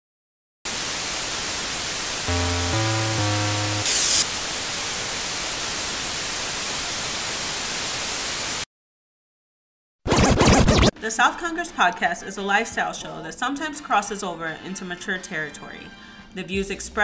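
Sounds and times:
television static hiss: 0.7s - 8.6s
short low electronic tones: 2.3s - 4.3s.

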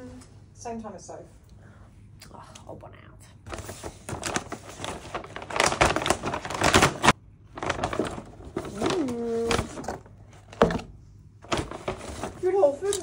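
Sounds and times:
food packaging crinkling: 3.5s - 10.7s, 11.4s - 13.0s.

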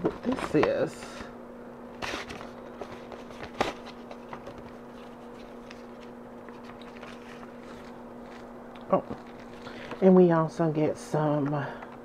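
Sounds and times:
steady low hum: 0.0s - 12.0s
paper envelopes rustling: 2.0s - 10.0s
sharp paper crackle: 2.0s - 10.0s.

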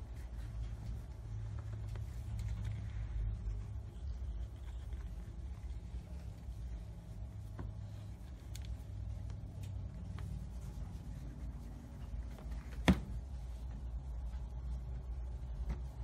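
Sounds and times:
hand stroking cat fur: 0.0s - 16.0s
steady low rumble: 0.0s - 16.0s.

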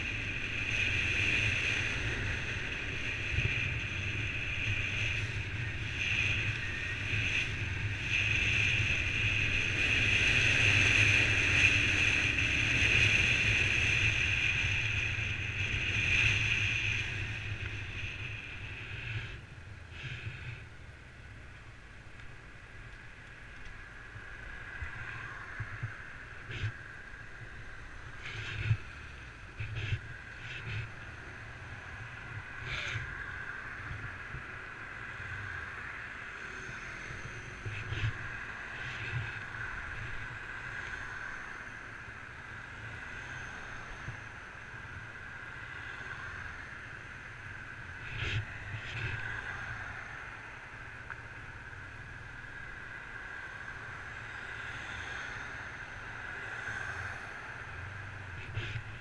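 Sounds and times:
cars passing: 0.0s - 59.0s.

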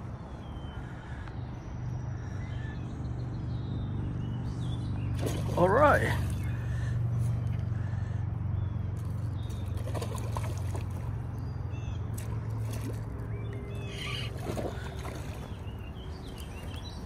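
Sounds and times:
small birds chirping: 0.0s - 17.0s
water splashing and trickling: 4.8s - 8.1s, 8.9s - 17.0s.

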